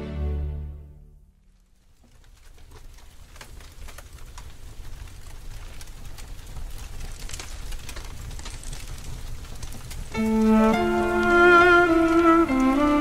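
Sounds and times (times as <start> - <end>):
tyre hiss on wet road: 9.3 - 13.0.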